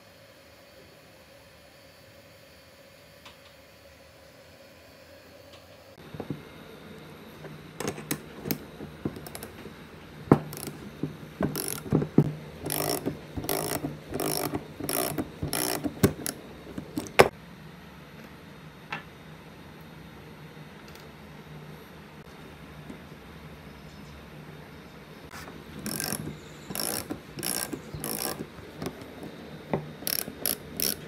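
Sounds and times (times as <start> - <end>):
rasping ratchet strokes: 7.8 - 9.7, 10.3 - 17.3, 25.3 - 31.0
metal tool clicks and clanks: 11.5 - 12.0, 12.6 - 17.3, 25.8 - 29.3, 30.0 - 31.0.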